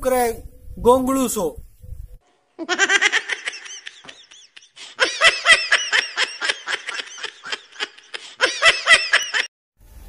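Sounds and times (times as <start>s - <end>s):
man laughing heartily: 2.6s - 9.5s.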